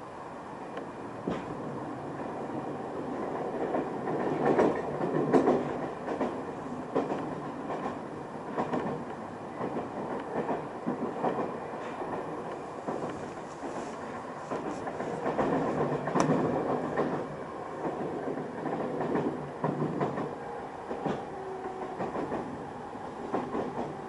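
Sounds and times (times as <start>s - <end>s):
train rumble from inside: 0.0s - 24.0s
wheels clicking over rail joints: 3.2s - 13.3s, 14.0s - 22.5s.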